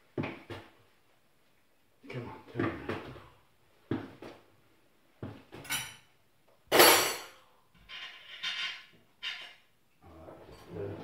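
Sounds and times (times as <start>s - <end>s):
crockery and cutlery clattering: 5.6s - 6.1s, 6.7s - 9.7s.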